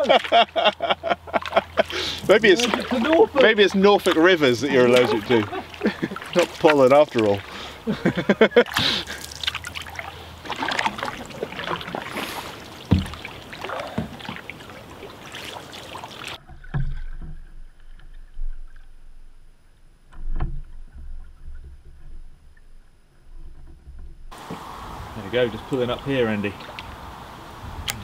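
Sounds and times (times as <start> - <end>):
paddle water splashing: 0.0 - 19.3, 20.1 - 28.0
reeds rustling against canoe: 0.0 - 19.4, 20.0 - 27.7
dull knocks: 12.9 - 13.2.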